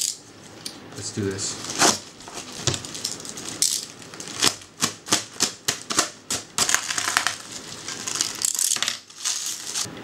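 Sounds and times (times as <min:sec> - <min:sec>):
plastic crinkling: 0:01.6 - 0:04.6, 0:06.6 - 0:09.9.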